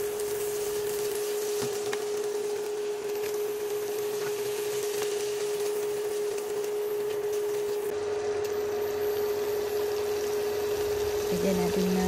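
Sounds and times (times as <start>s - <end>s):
cooktop hum: 0.0s - 12.0s
food sizzling in a pan: 0.0s - 12.0s.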